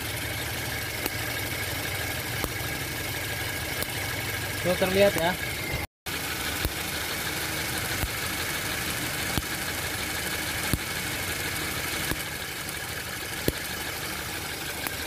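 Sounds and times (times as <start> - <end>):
car engine idling: 0.0 - 15.0
sharp snapping spark ticks: 1.0 - 1.3, 2.4 - 2.6, 3.8 - 4.0, 6.6 - 6.9, 7.9 - 8.3, 9.2 - 9.6, 10.6 - 11.0, 12.0 - 12.3, 13.4 - 13.7, 14.8 - 15.0.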